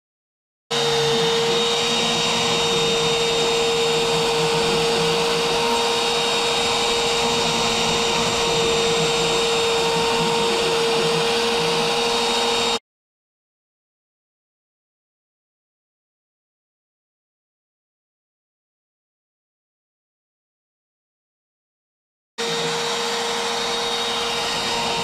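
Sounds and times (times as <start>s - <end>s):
router spindle high whine: 0.7s - 12.8s, 22.4s - 25.0s.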